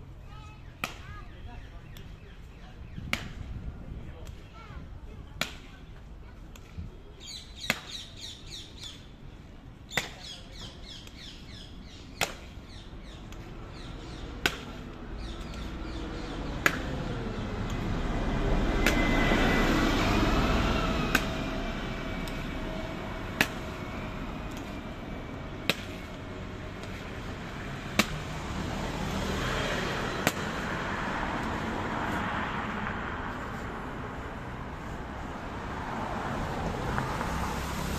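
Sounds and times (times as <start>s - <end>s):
birds chirping: 0.1s - 3.5s, 6.9s - 31.8s
vehicle passing: 13.0s - 37.9s.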